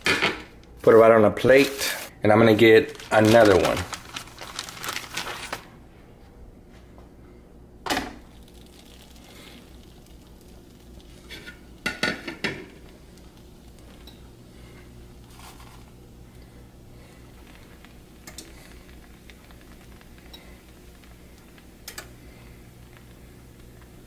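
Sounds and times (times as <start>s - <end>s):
plastic bag rustling: 0.8s - 5.8s, 8.3s - 11.8s, 12.6s - 23.1s.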